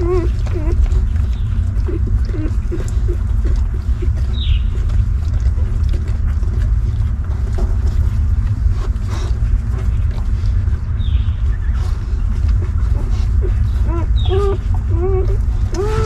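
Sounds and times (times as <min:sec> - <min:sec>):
puppy squeaking: 0:00.0 - 0:01.0, 0:13.0 - 0:16.0
low rumble: 0:00.0 - 0:16.0.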